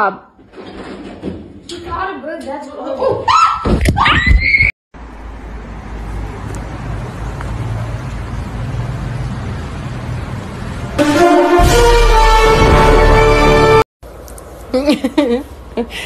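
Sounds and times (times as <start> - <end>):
distant road traffic hum: 5.0 - 11.6, 14.0 - 16.0
loud music: 11.0 - 13.8.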